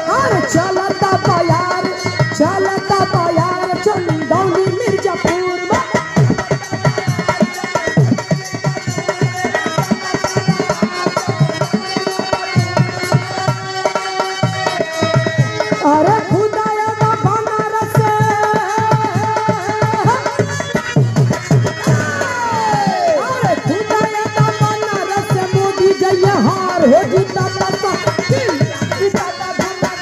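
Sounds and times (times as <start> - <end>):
fast hand-drum beat: 14.4 - 30.0.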